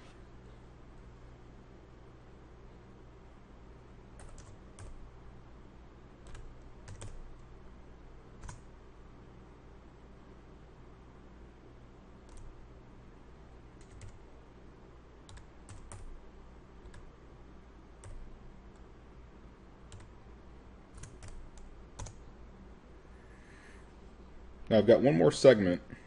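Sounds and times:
faint low hum: 0.0s - 26.0s
computer keyboard typing: 4.2s - 5.0s, 6.2s - 7.4s, 8.4s - 8.7s, 12.2s - 12.6s, 13.8s - 14.2s, 15.2s - 16.2s, 16.8s - 17.1s, 18.0s - 18.9s, 19.9s - 20.2s, 20.9s - 22.2s.

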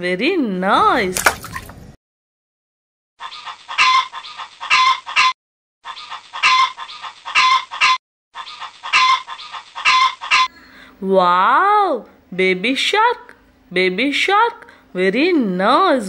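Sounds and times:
chicken clucking: 3.2s - 10.5s.

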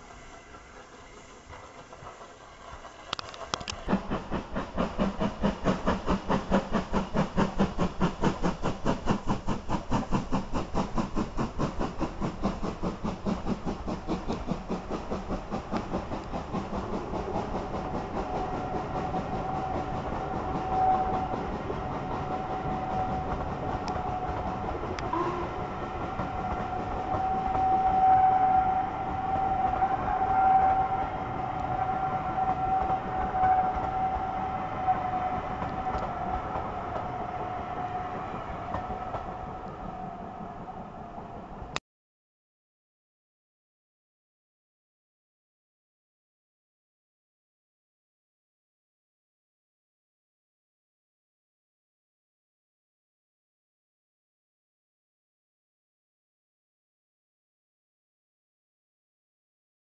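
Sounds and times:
steam locomotive exhaust beat: 0.0s - 41.8s
high-pitched squeal: 25.0s - 39.2s.

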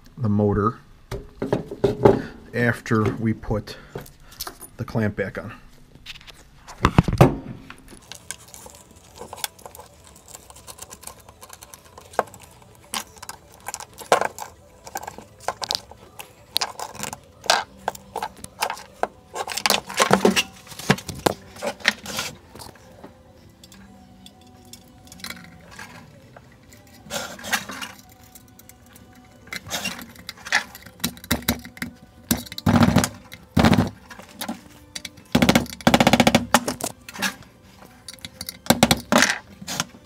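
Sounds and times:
metal parts clinking: 23.6s - 35.9s, 38.0s - 39.5s.

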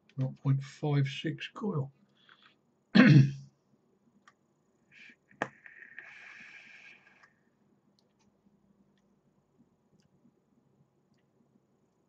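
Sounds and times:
e-cigarette coil hissing: 5.4s - 7.3s.

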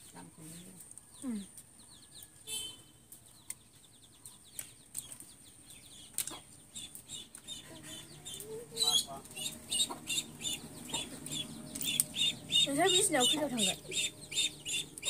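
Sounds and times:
chickens calling: 1.0s - 15.0s
snail shells clicking and breaking: 11.7s - 12.3s.

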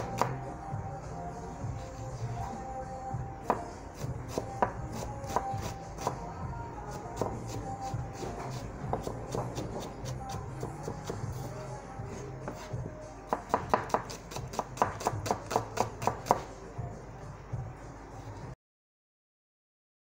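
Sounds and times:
knife chopping on cutting board: 0.0s - 0.4s, 3.4s - 6.2s, 6.9s - 11.3s, 12.4s - 16.5s.

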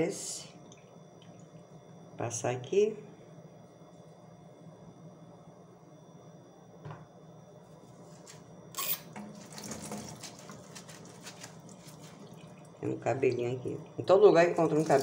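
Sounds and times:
tap water running into sink: 9.1s - 12.8s, 14.6s - 15.0s.

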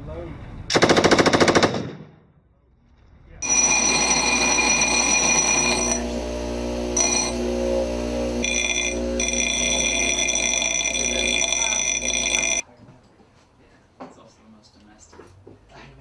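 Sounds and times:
machine gun burst: 0.7s - 2.0s
steady whine: 3.4s - 12.6s.

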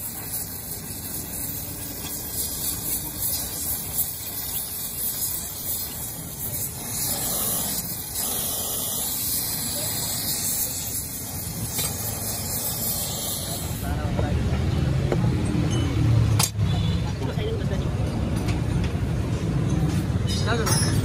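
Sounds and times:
gas torch flame hissing: 0.0s - 14.8s.

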